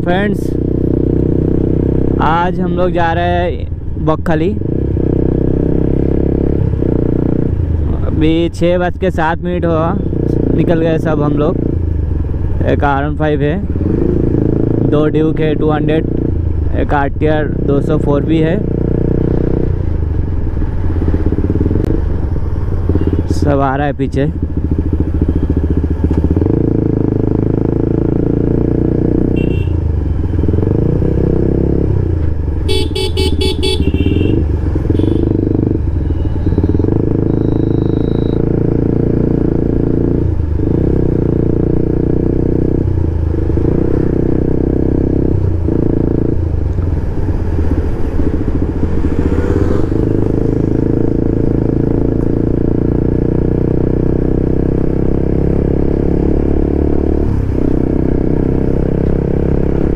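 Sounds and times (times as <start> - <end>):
motorcycle engine running: 10.0 - 59.9
horn short beeps: 29.4 - 29.8, 32.7 - 38.5.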